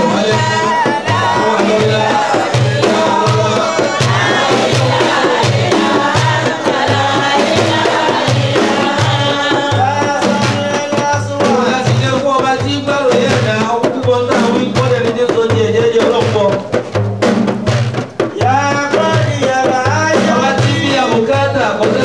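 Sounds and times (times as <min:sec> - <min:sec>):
person singing: 0:00.0 - 0:16.1
hand-drum beat: 0:00.0 - 0:22.0.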